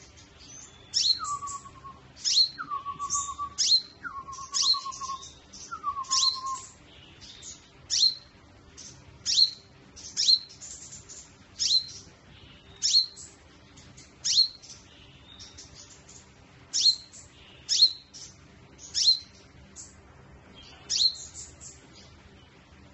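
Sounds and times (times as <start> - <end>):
bird calling sharp chips: 0.0 - 8.2.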